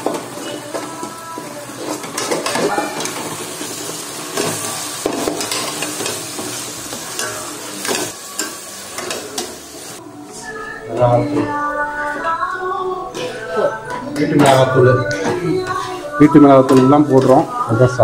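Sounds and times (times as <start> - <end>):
food sizzling in a pan: 0.0 - 10.0.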